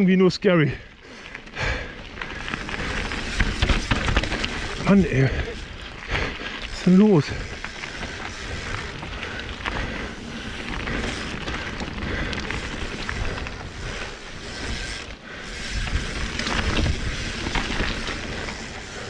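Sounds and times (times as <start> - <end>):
bike tyres on gravel: 0.0 - 19.0
bike rattles and knocks: 1.4 - 19.0
wind rumble on microphone: 15.6 - 18.6.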